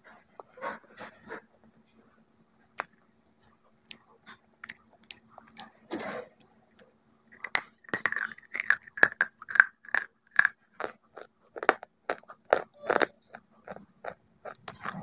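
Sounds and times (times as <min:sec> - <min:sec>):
crunching bites and chewing: 0:03.8 - 0:05.8, 0:06.8 - 0:15.0.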